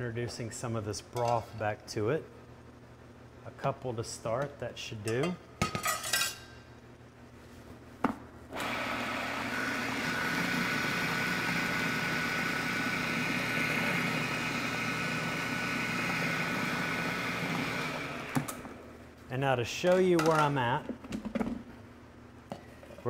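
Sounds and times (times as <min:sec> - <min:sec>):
food processor whirring: 0:08.6 - 0:18.8.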